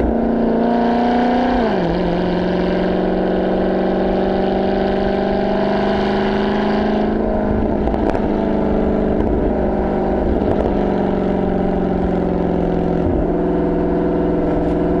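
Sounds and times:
car engine cruising: 0.0 - 15.0
exhaust crack: 7.2 - 15.0.

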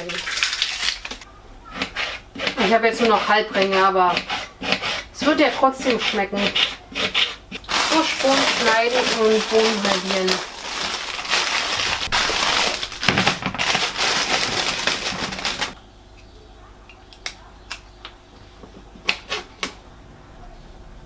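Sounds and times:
knife cutting green beans: 1.7 - 7.6
plastic bag crinkling: 7.6 - 15.8.

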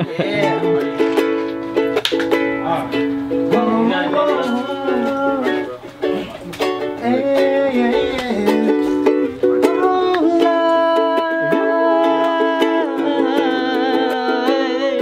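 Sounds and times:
ukuleles strumming chords: 0.0 - 15.0
wordless singing voice: 3.3 - 15.0.

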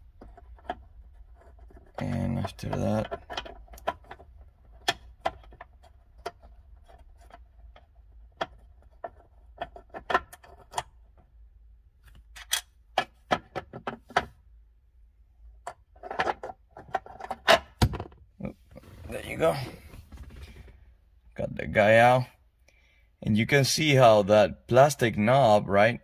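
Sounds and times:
metal latch being worked loose: 12.3 - 14.3.

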